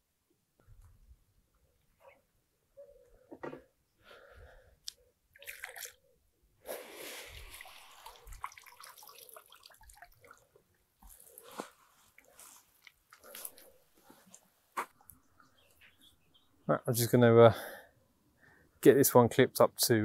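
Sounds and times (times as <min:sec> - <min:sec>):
water dripping: 0:04.8 - 0:06.0, 0:07.3 - 0:11.5
water pouring and splashing: 0:05.4 - 0:06.0, 0:06.7 - 0:13.6.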